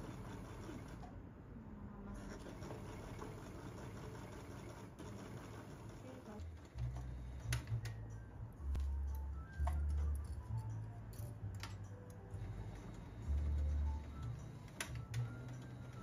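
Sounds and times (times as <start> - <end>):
sewing machine clattering: 2.2 - 6.8.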